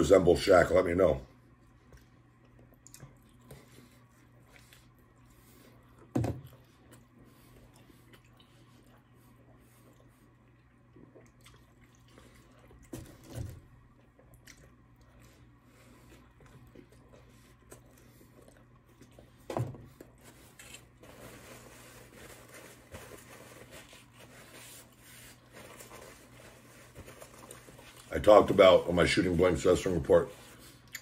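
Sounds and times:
person chewing: 0:01.8 - 0:13.0, 0:13.8 - 0:21.0, 0:30.7 - 0:31.0.

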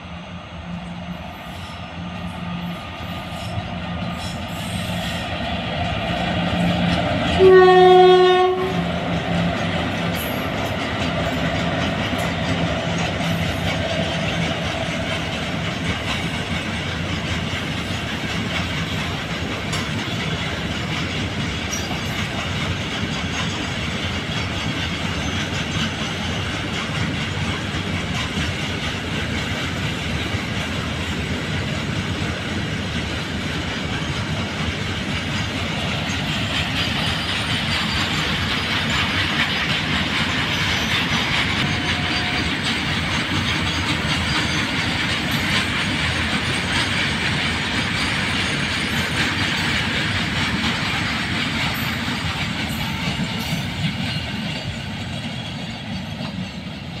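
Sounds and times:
electric locomotive hum: 0:00.0 - 0:57.0
train wheels rumbling on rail: 0:00.0 - 0:57.0.

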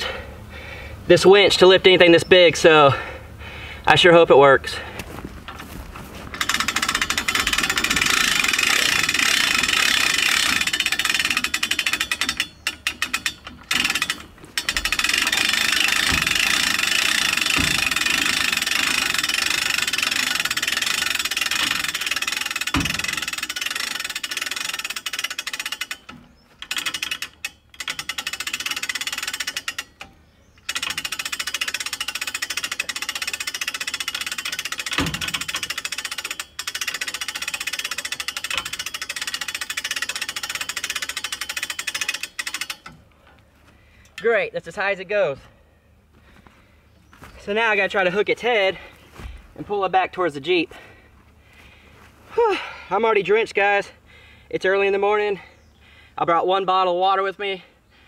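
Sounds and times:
winch motor running under load: 0:05.5 - 0:43.1.

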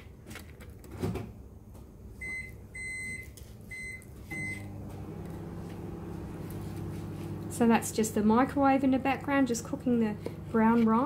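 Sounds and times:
microwave keypad beeps: 0:02.2 - 0:04.7
microwave humming: 0:04.2 - 0:11.0.

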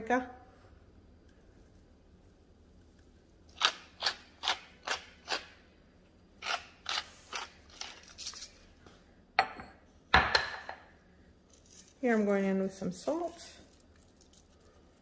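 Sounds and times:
spice grinder crunching: 0:03.4 - 0:05.6, 0:06.4 - 0:08.7, 0:13.2 - 0:15.0.

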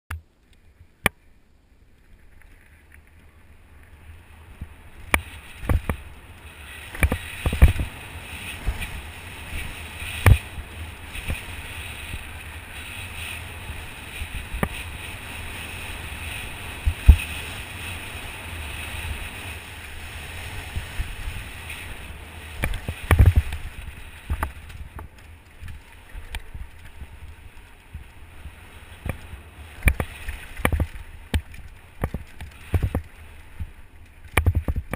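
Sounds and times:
bike tyre noise on dirt: 0:00.2 - 0:34.9
bike knocks and rattles on bumps: 0:04.6 - 0:06.1, 0:06.8 - 0:12.4, 0:13.2 - 0:18.0, 0:20.6 - 0:33.7, 0:34.3 - 0:34.9.

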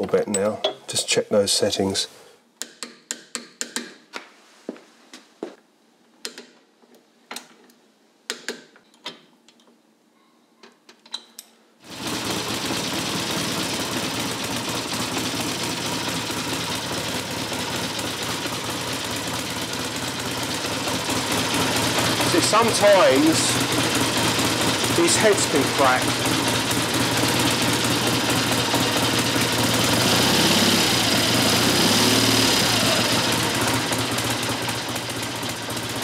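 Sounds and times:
motorcycle engine running: 0:11.9 - 0:36.0.

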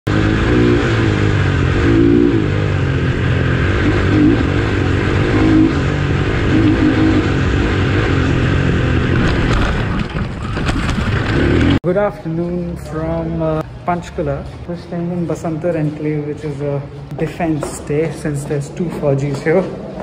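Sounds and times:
motorcycle engine revving: 0:00.0 - 0:11.8.

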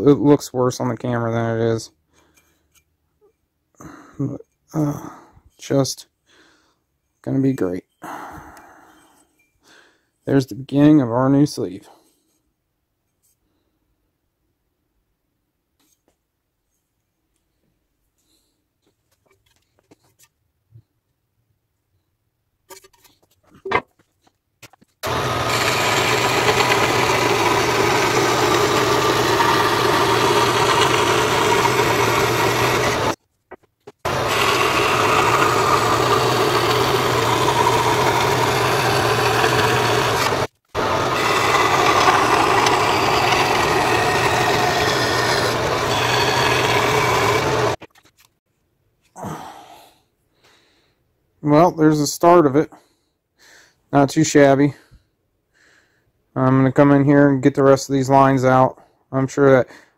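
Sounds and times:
band saw cutting sheet metal: 0:25.0 - 0:33.2, 0:34.1 - 0:47.8.

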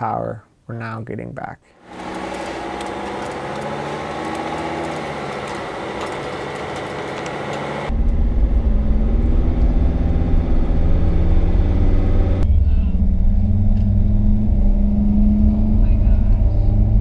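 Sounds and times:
diesel van engine running: 0:01.8 - 0:14.1.

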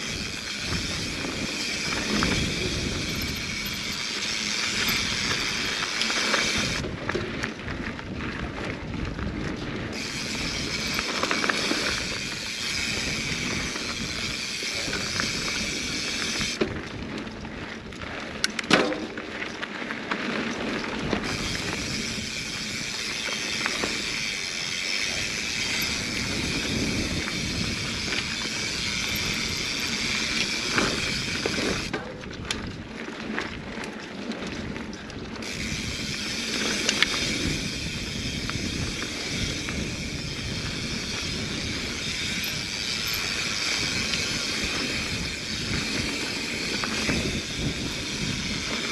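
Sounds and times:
bike rattling over bumps: 0:00.0 - 0:48.9.

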